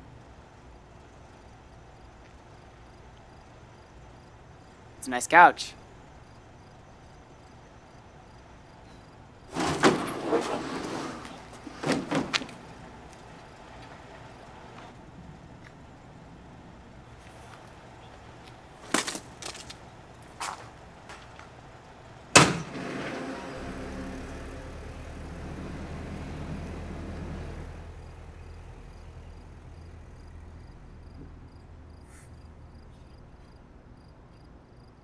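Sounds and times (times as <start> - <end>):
truck engine driving off: 20.8 - 33.0
vehicle door slam: 22.3 - 23.8
sharp knocks: 22.4 - 23.4.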